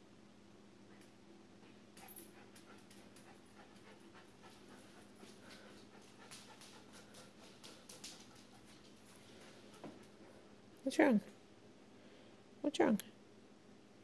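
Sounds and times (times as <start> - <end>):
dog panting faintly: 1.6 - 10.5.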